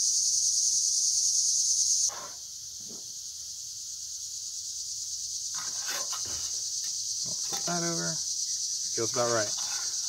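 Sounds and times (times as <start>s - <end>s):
insect chorus: 0.0s - 10.0s
metal utensil scraping a pan: 5.6s - 6.4s, 9.2s - 10.0s.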